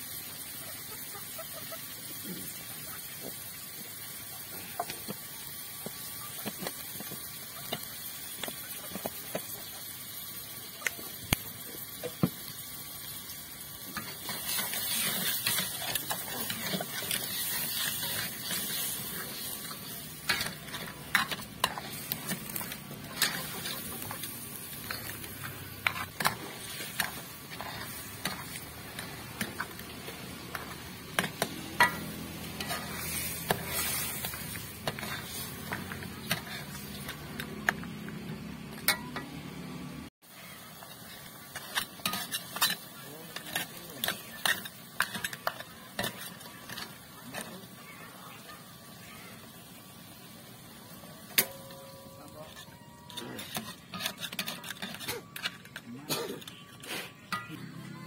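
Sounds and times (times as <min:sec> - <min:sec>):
crabs sizzling in oil: 0:00.0 - 0:58.0
metal spatula scraping wok: 0:13.8 - 0:37.9, 0:40.4 - 0:48.4, 0:51.4 - 0:58.0.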